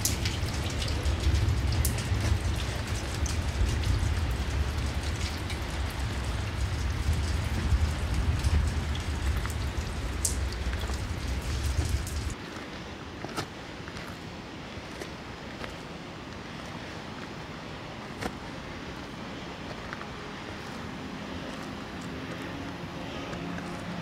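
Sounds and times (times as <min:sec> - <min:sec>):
wind buffeting microphone: 0:00.0 - 0:12.4
rain-like hiss: 0:00.0 - 0:24.0.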